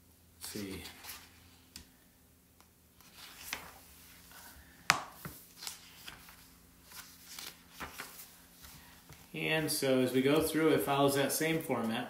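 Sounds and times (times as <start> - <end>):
book pages flipping: 0.5 - 1.9, 2.6 - 9.4.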